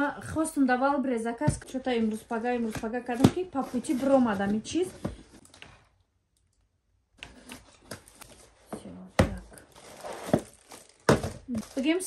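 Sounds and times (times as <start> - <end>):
cardboard and plastic rustling: 1.4 - 6.0, 7.2 - 12.0.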